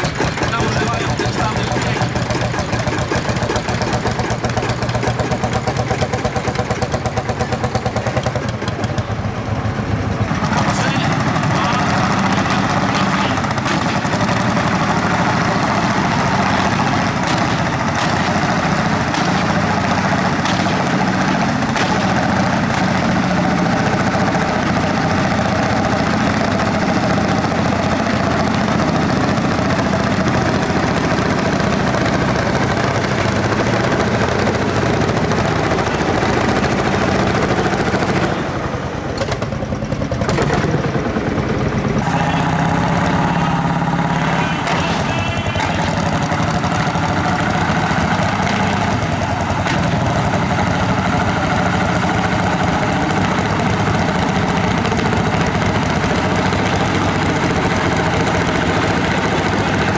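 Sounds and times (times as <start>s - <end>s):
tractor engines running under load: 0.0s - 59.9s.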